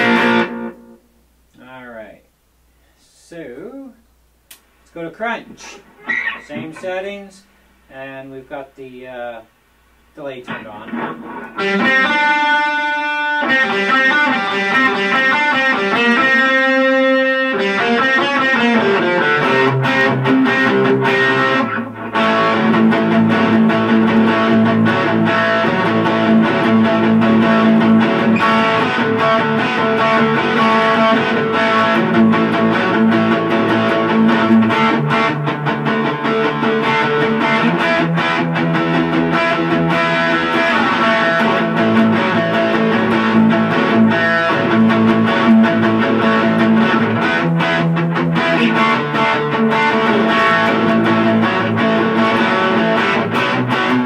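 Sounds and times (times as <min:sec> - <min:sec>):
electric guitar single notes: 0:00.0 - 0:01.6, 0:05.6 - 0:07.1, 0:10.2 - 0:54.0
distorted guitar chords: 0:00.0 - 0:01.7, 0:05.4 - 0:08.5, 0:09.5 - 0:54.0.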